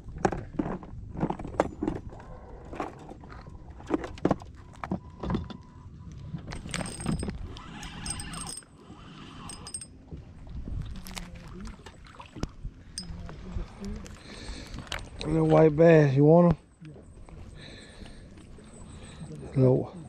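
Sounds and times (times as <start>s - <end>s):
gear knocking and clattering: 6.5s - 8.7s.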